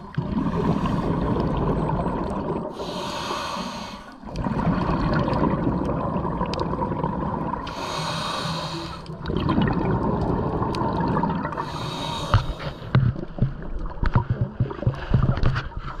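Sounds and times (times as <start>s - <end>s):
exhaled bubbles rushing: 0.0s - 2.8s, 4.2s - 7.8s, 9.1s - 11.7s
hissing regulator in-breaths: 2.7s - 4.3s, 7.6s - 9.2s, 11.5s - 13.0s.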